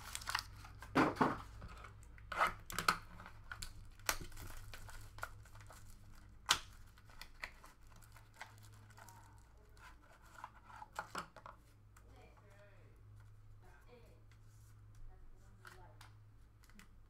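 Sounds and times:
plastic wrapper crinkling and tearing: 0.0 - 1.0, 2.7 - 10.0.

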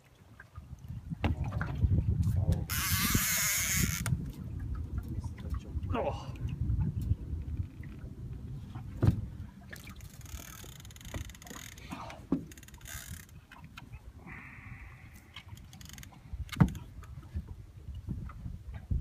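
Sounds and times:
water against boat hull: 0.0 - 19.0
wind on microphone: 0.5 - 19.0
fishing reel whirring: 2.7 - 4.1, 10.0 - 11.8, 12.5 - 13.3.

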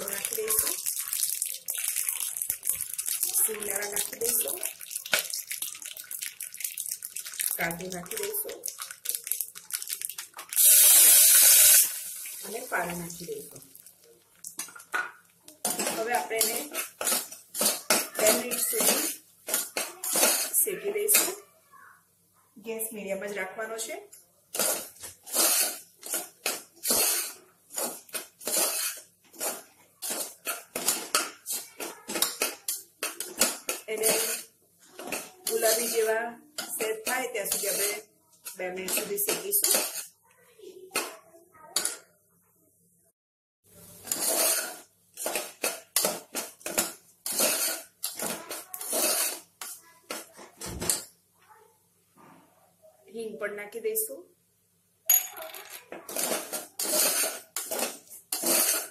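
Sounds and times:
metal spoon scraping a pot: 15.6 - 21.3, 24.6 - 40.1, 44.0 - 49.8, 56.1 - 58.9.

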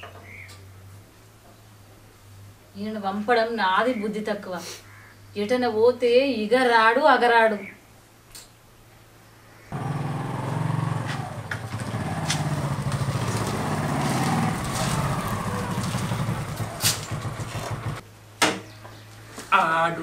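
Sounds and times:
motorcycle engine running: 9.7 - 18.0.

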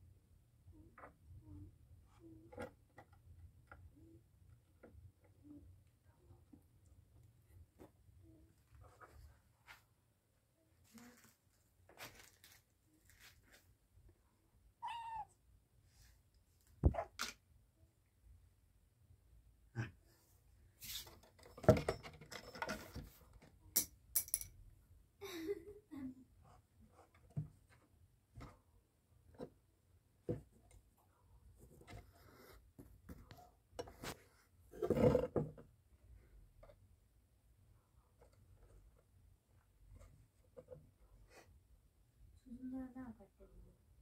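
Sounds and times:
faint scuffling and scratching: 7.6 - 10.1, 10.7 - 13.8, 20.6 - 21.6, 31.4 - 35.4
kitten meowing: 14.8 - 15.4.

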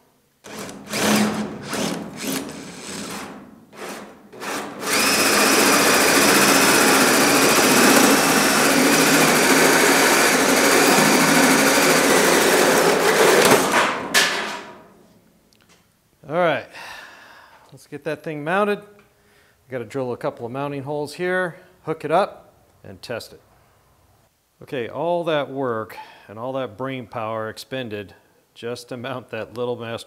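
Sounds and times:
drill hole saw cutting steel: 0.5 - 13.6.

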